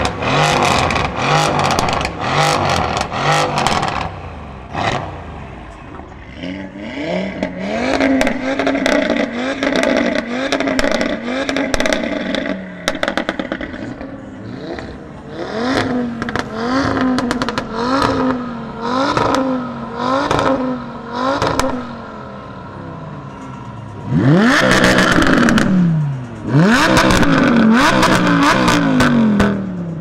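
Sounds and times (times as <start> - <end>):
exhaust crackles and pops: 0.0 - 4.2, 7.4 - 18.4, 19.0 - 19.6, 20.2 - 20.7, 21.3 - 22.0, 23.4 - 30.0
car engine revving: 0.0 - 30.0.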